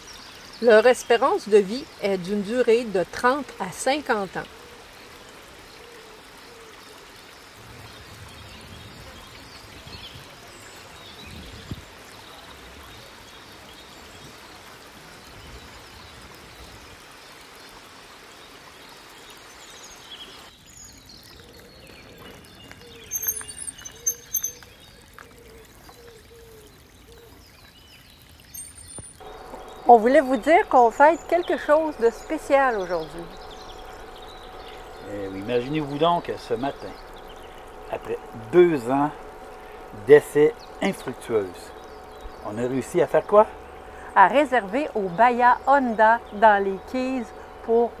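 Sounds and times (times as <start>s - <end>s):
flowing spring water: 0.0s - 48.0s
high bird chirps: 22.6s - 25.0s, 28.4s - 44.8s.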